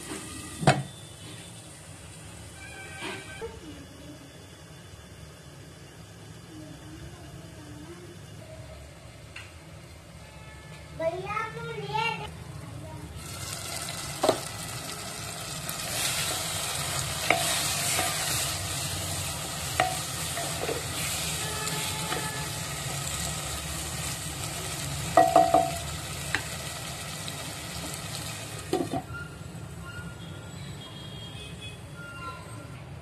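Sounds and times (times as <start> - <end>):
food sizzling in a pot: 13.1 - 29.2
spatula stirring and scraping: 15.7 - 22.6
spatula knocking against pot: 25.2 - 25.8.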